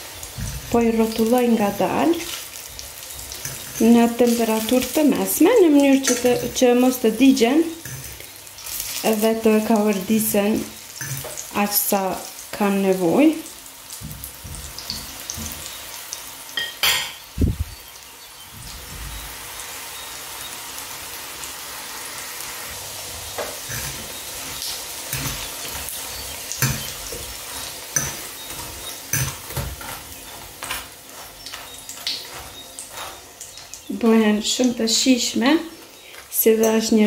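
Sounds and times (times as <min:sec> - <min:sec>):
patties sizzling in oil: 0:00.0 - 0:37.0.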